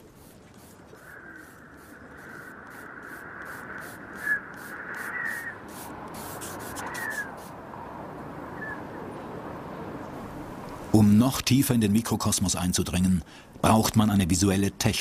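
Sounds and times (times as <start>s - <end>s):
scratching strokes on paper: 0.0s - 7.6s.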